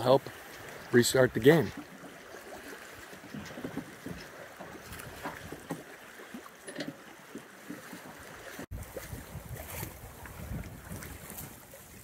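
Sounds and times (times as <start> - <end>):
water splashing along hull: 0.0 - 12.0
wind on microphone: 8.7 - 12.0.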